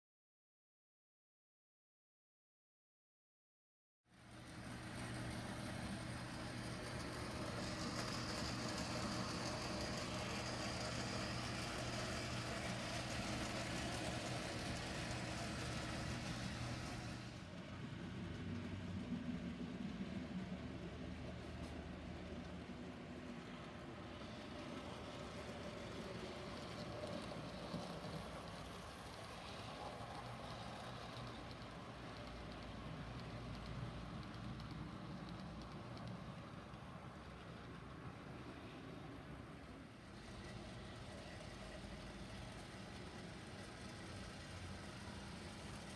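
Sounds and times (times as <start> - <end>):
model train rumble and whir: 4.1 - 45.9
model steam locomotive hiss: 4.5 - 17.4.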